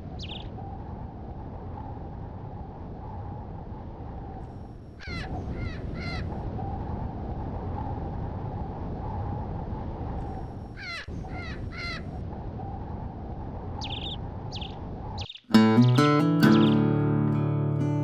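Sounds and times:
high bird calls: 0:00.0 - 0:00.6, 0:04.8 - 0:06.4, 0:10.6 - 0:12.2, 0:13.8 - 0:17.0
crow cawing: 0:05.0 - 0:06.3, 0:10.8 - 0:12.1.

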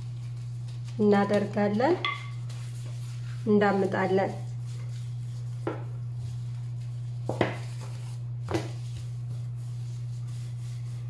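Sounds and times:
rolling pin rolling dough: 0:00.0 - 0:11.0
steady low hum: 0:00.0 - 0:11.0
rolling pin knocking on counter: 0:05.6 - 0:05.9, 0:07.3 - 0:07.7, 0:08.5 - 0:08.8.

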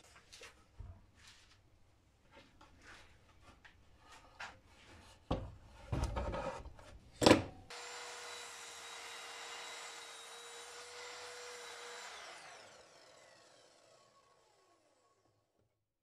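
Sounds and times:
saw motor whining: 0:07.7 - 0:15.4.

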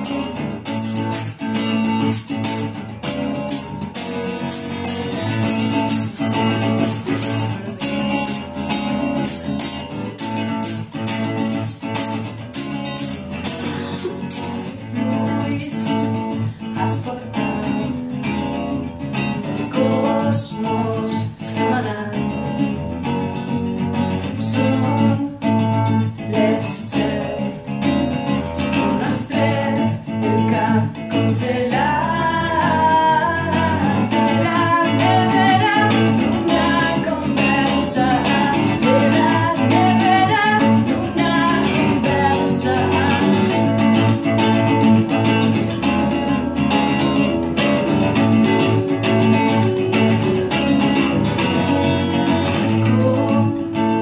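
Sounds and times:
clean electric guitars: 0:00.0 - 0:54.0
woman singing: 0:13.4 - 0:23.5, 0:24.1 - 0:54.0.

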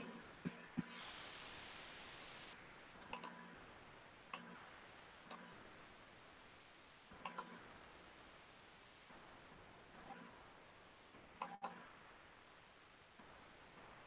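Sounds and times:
computer mouse clicks: 0:03.0 - 0:03.5, 0:04.3 - 0:04.6, 0:05.3 - 0:05.6, 0:07.2 - 0:07.6, 0:11.4 - 0:11.8.

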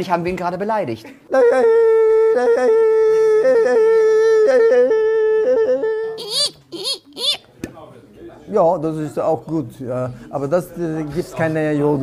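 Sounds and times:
man yodeling: 0:01.3 - 0:06.6.

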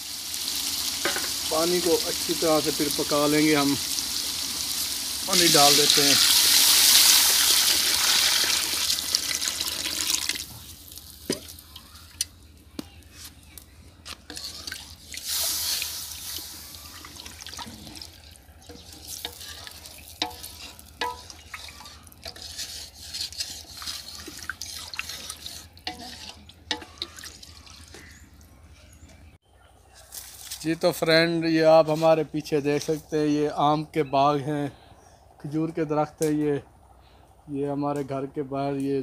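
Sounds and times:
water pouring into a pot: 0:00.0 - 0:11.7, 0:14.4 - 0:22.7, 0:23.6 - 0:28.0
spoon stirring liquid: 0:14.3 - 0:15.3, 0:17.1 - 0:28.1.

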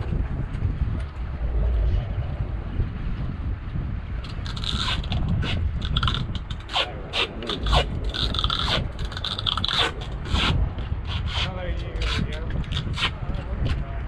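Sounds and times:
steady low rumble: 0:00.0 - 0:14.0
irregular scraping and rubbing: 0:04.2 - 0:13.8.

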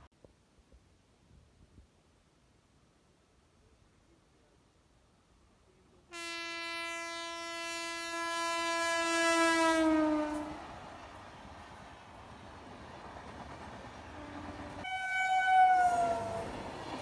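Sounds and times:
train horn long blast: 0:06.1 - 0:10.8, 0:14.1 - 0:16.6
rushing of passing train: 0:08.5 - 0:17.0.

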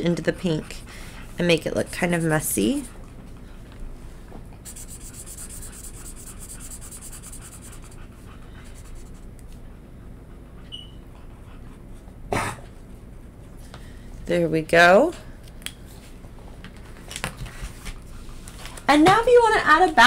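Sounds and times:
marker scribbling on paper: 0:01.5 - 0:02.9, 0:04.6 - 0:08.0.

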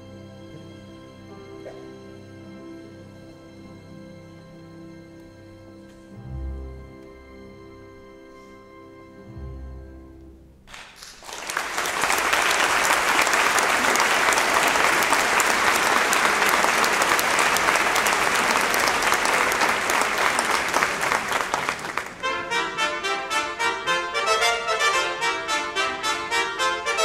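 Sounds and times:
audience applauding: 0:10.7 - 0:22.3
orchestra playing brass passage: 0:11.5 - 0:27.0.

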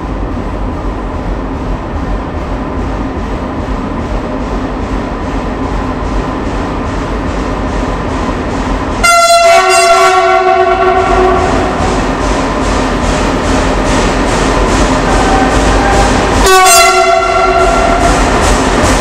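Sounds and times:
freight train rumbling: 0:00.0 - 0:19.0
two-note train horn: 0:09.0 - 0:11.8, 0:15.2 - 0:18.1.

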